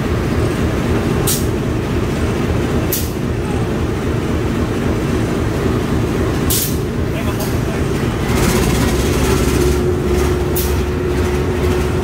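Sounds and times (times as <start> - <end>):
locomotive idling rumble: 0.0 - 12.0.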